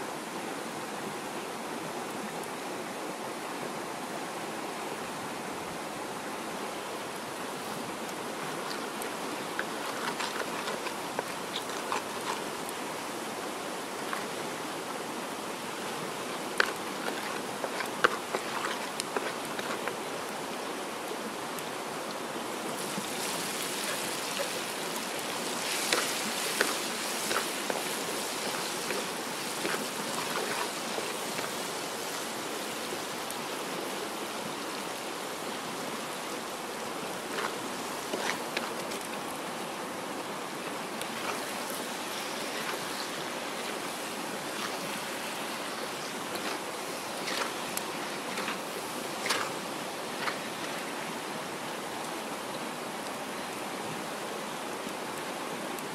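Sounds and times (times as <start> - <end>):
hot oil sizzling in a wok: 22.8 - 30.2.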